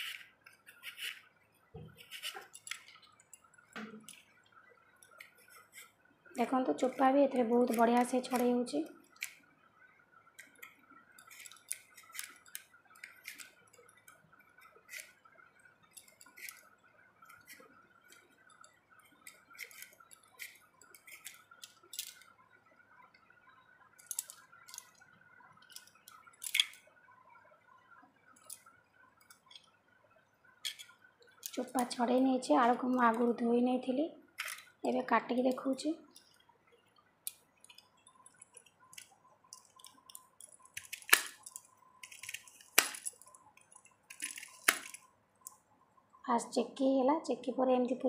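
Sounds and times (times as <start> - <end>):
peeler scraping potato: 0.0 - 1.2, 1.9 - 2.9, 5.2 - 9.3, 11.2 - 13.5, 14.9 - 15.2, 19.2 - 21.4.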